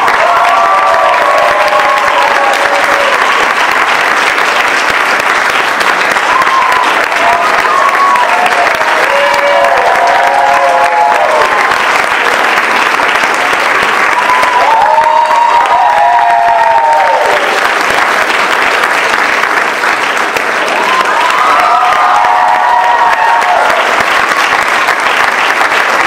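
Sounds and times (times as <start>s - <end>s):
whoops and cheers: 0.0s - 3.6s, 6.2s - 11.8s, 14.0s - 17.6s, 20.7s - 24.4s
audience applauding: 0.0s - 26.0s.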